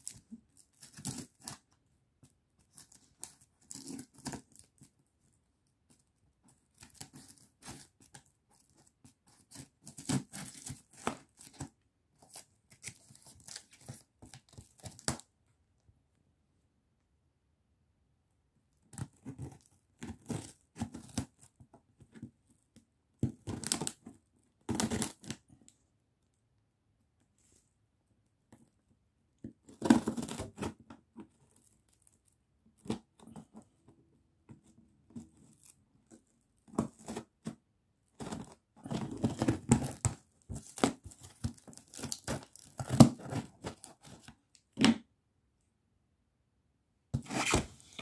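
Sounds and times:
tape tearing: 47.2 - 48.0.

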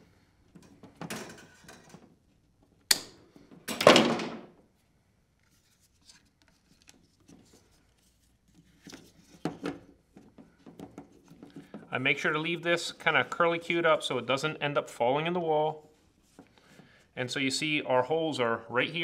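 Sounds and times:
handling noises: 4.6 - 14.3.

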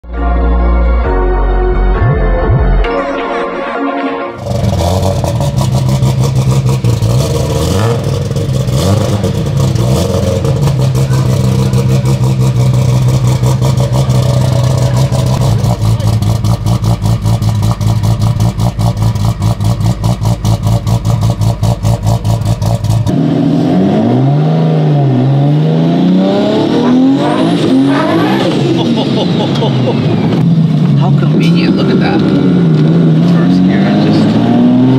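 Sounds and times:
car engine idling: 4.4 - 23.1
car accelerating hard: 4.4 - 34.9.

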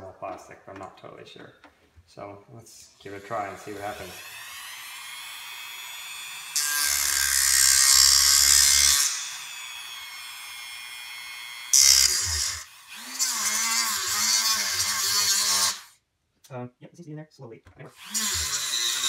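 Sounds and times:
harsh grinding rasp: 3.0 - 10.4, 11.7 - 15.9, 18.0 - 19.0
rotary tool whining: 3.1 - 15.9, 18.0 - 19.0.

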